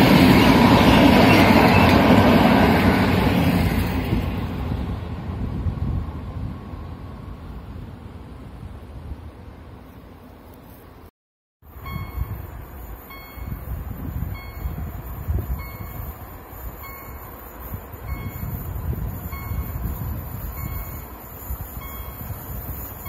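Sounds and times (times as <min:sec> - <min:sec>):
wind buffeting microphone: 0:00.0 - 0:09.4, 0:11.8 - 0:23.0
level crossing warning bell: 0:11.7 - 0:16.1, 0:16.8 - 0:17.4, 0:18.0 - 0:18.6, 0:19.3 - 0:19.9, 0:20.5 - 0:21.2, 0:21.8 - 0:22.4.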